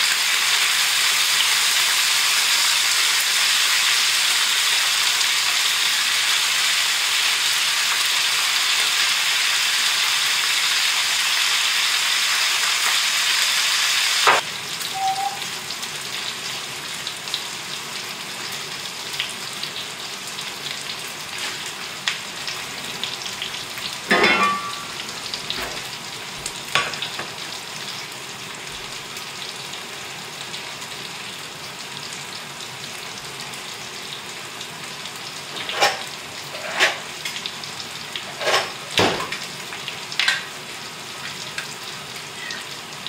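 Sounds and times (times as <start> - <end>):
potatoes and bacon sizzling in a pan: 0.0 - 43.0.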